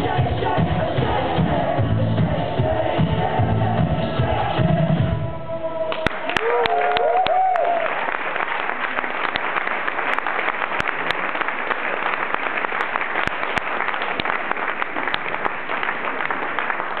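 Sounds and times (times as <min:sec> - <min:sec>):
audience applauding: 0:05.9 - 0:17.0
sharp individual claps: 0:05.9 - 0:17.0.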